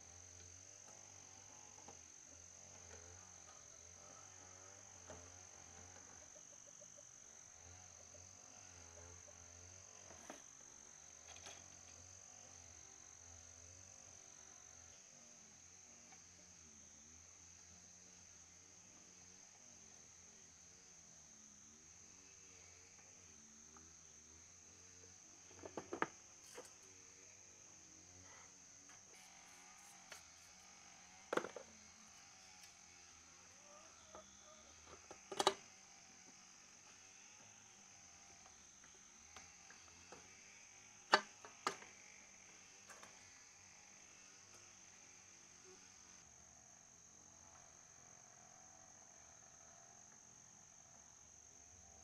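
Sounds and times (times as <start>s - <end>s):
insects chirring: 0.0s - 52.0s
fan parts clicking and knocking: 25.5s - 26.8s, 29.1s - 32.4s, 34.1s - 35.7s, 41.1s - 42.0s.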